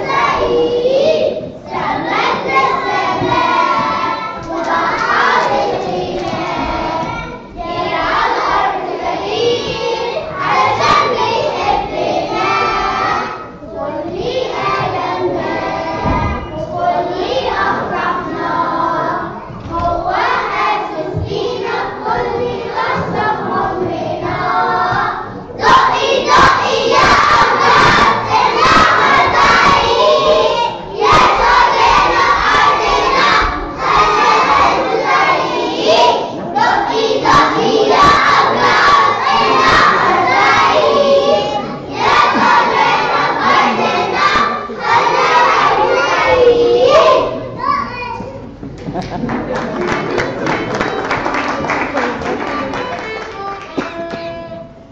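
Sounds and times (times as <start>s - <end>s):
children singing together: 0.0s - 48.6s.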